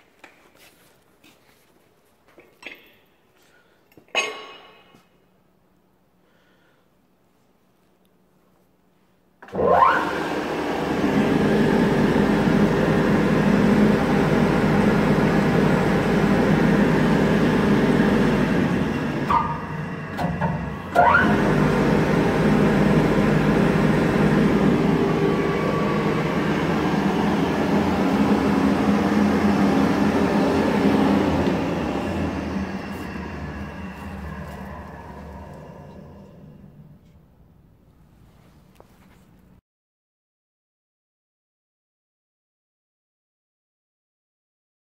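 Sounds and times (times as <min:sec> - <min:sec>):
motor whine spinning up: 0:09.4 - 0:37.0
grinder motor humming: 0:09.6 - 0:36.8.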